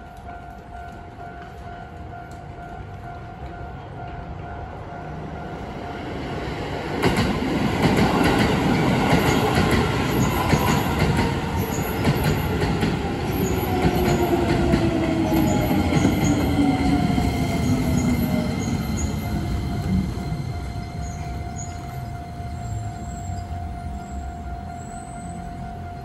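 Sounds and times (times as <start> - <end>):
level-crossing bell ringing: 13.4 - 26.0.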